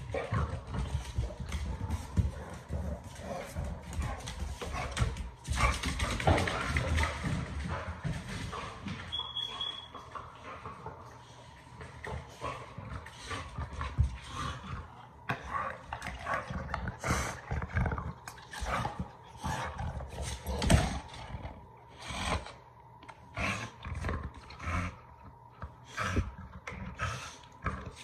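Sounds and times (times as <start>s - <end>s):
dog growling: 23.2s - 28.0s.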